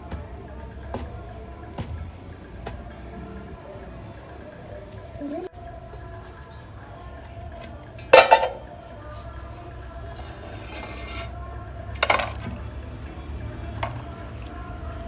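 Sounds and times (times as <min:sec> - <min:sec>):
clink against steel pot: 0:08.2 - 0:08.7
hand scraping stone mortar: 0:10.4 - 0:11.3.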